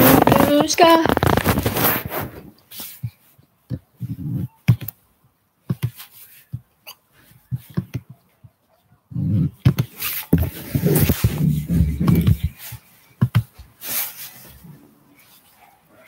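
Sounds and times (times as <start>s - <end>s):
device rubbing against clothing: 0.0s - 3.1s, 9.1s - 15.6s.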